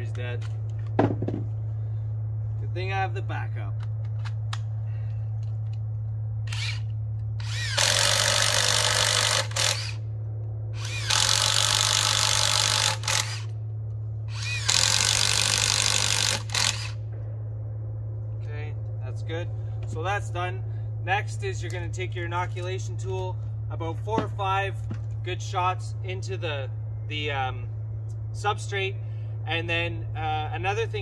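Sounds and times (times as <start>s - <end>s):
low steady hum: 0.0s - 31.0s
cordless drill whining: 6.5s - 10.0s, 10.8s - 13.5s, 14.3s - 17.0s.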